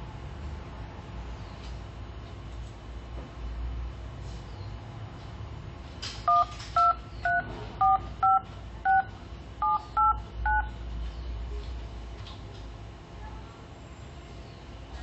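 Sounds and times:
phone keypad tones: 6.3 - 10.7.

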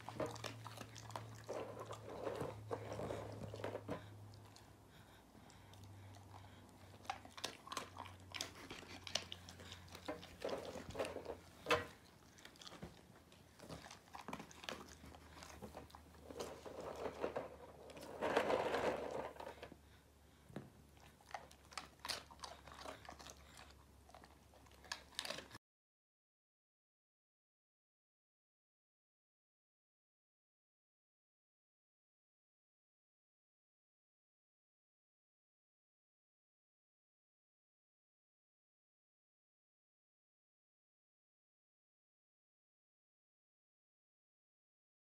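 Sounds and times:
dog crunching dry treats: 0.0 - 4.6, 6.8 - 19.8, 21.0 - 25.6.

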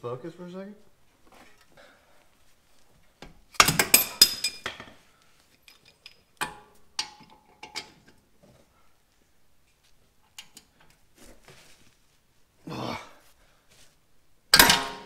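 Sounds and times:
hammer striking brake disc: 14.6 - 15.0.

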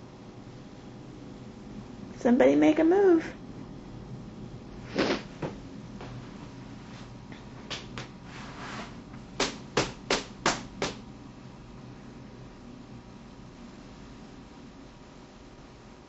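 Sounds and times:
sharp knocks: 9.4 - 11.0.

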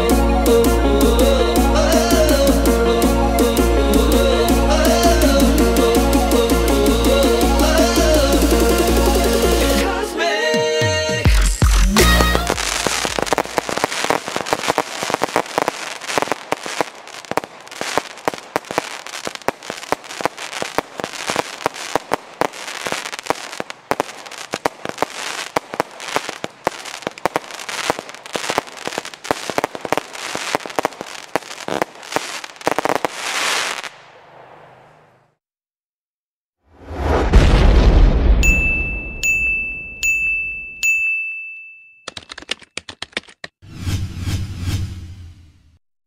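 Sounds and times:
firework pops and bangs: 11.9 - 35.0.

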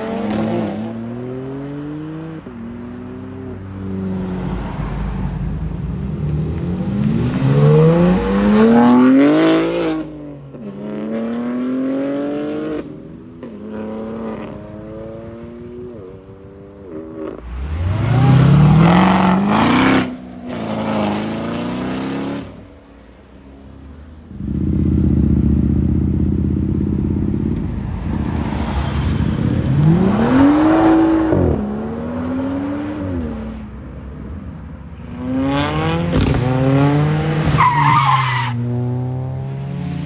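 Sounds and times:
cars and motorbikes accelerating: 0.0 - 40.0.

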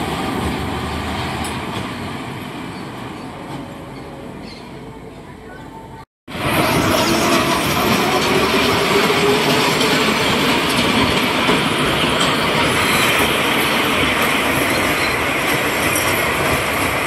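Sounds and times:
roller coaster wheels on steel track: 6.3 - 17.0.

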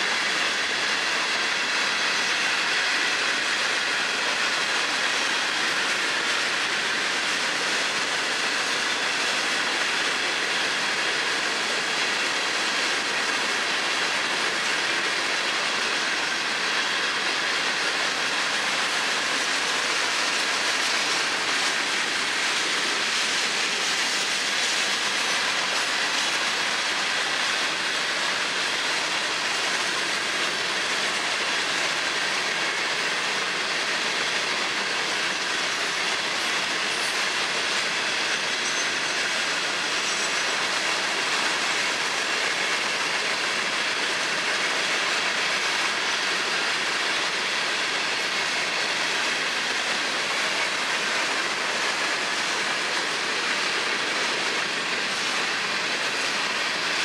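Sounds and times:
train wheels hissing on rail: 0.0 - 57.0.

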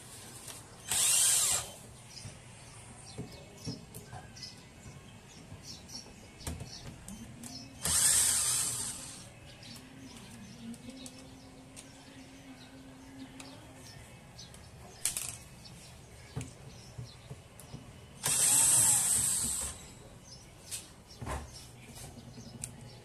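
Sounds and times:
cordless drill running: 0.9 - 1.8, 7.8 - 9.2, 18.2 - 19.8.

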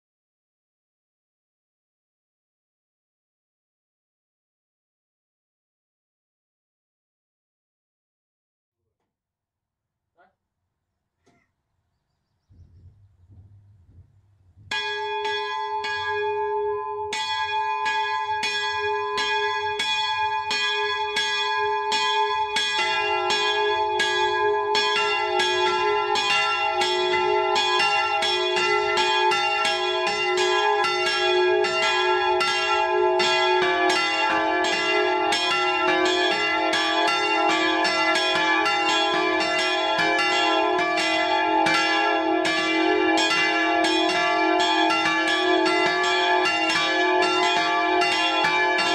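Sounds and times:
church bells ringing: 14.7 - 48.9.

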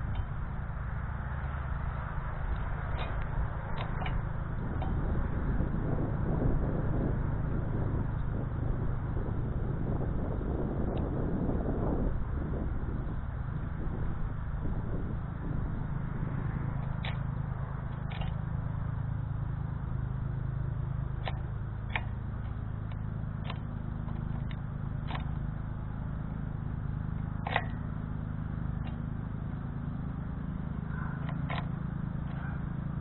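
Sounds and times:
steady low rumble: 0.0 - 33.0.

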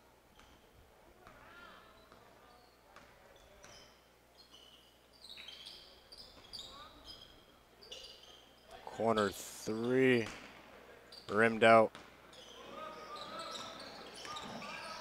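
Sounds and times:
sneakers squeaking on court floor: 1.2 - 15.0
basketball bouncing: 10.2 - 10.5.

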